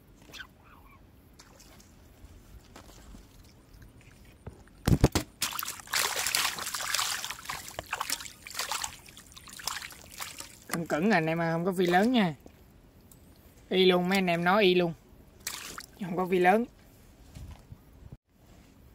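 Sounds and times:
splashing trickling water: 1.4s - 12.7s, 15.4s - 16.1s.

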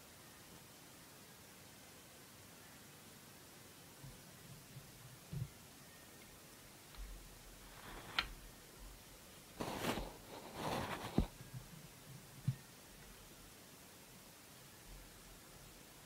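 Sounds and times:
rustling: 7.0s - 8.4s, 9.5s - 11.7s
soft thumps: 9.6s - 11.3s.

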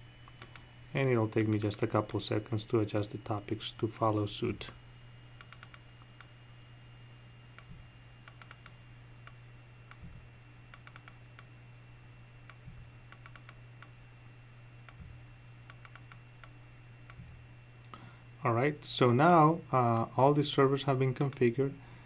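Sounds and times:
steady low hum: 0.0s - 22.0s
mouse clicks: 0.2s - 0.7s, 5.4s - 6.3s, 7.6s - 11.5s, 12.5s - 13.9s, 14.9s - 17.3s
computer keyboard typing: 5.4s - 5.8s, 8.3s - 8.8s, 10.8s - 11.5s, 13.1s - 13.9s, 15.7s - 16.5s.

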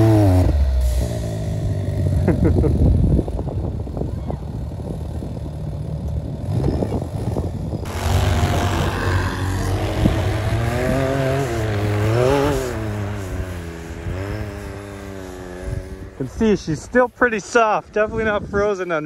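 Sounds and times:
engine revving up and down: 0.0s - 2.9s, 6.4s - 16.6s
utv engines running: 0.0s - 19.0s.

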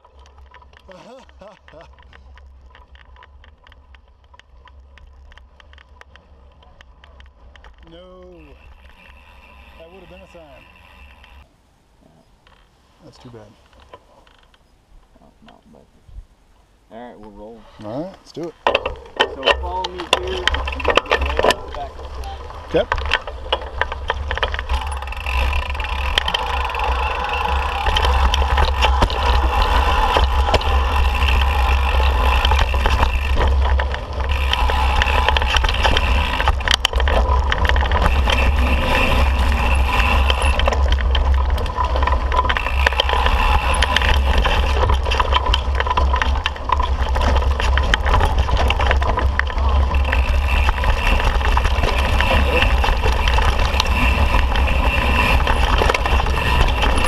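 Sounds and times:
bike clicks and rattles: 0.0s - 11.5s, 13.6s - 14.7s, 18.4s - 57.0s
bike tyres on dirt trail: 0.0s - 15.4s, 17.4s - 57.0s
wind rumble on microphone: 18.7s - 57.0s.

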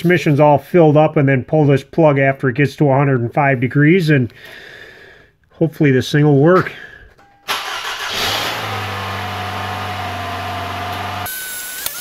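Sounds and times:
car engine running: 8.1s - 11.3s.

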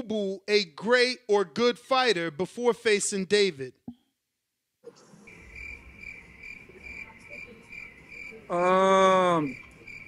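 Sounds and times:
faint high chirping: 5.3s - 10.0s.

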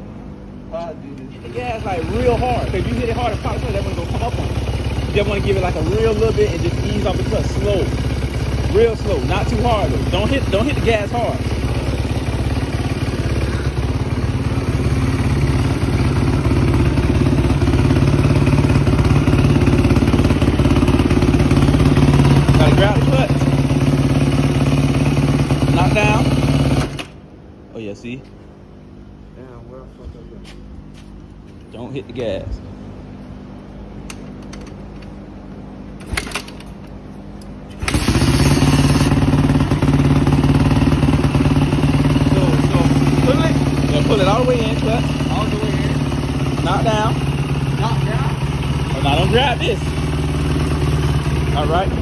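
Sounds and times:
engine idling: 1.3s - 27.2s, 37.7s - 52.0s.

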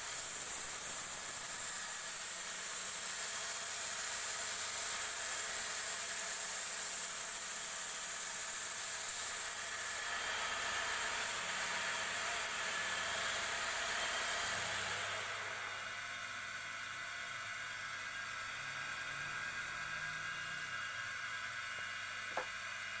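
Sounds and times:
sanding hiss on spinning wood: 0.0s - 15.6s
wood lathe motor hum: 0.0s - 23.0s.

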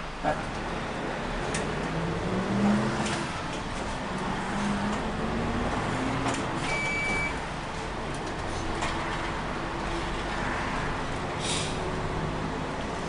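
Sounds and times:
bus engine and road noise: 0.0s - 13.0s
brief high beep: 6.7s - 7.4s.

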